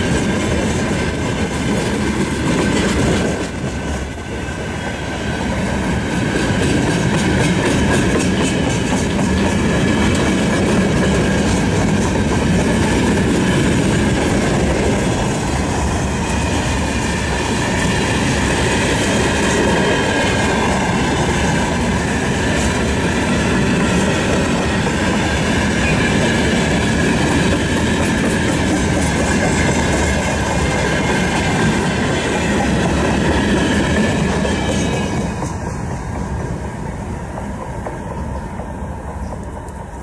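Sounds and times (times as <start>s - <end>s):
wheel squeal: 0.0s - 9.4s
freight train rolling past: 0.0s - 40.0s.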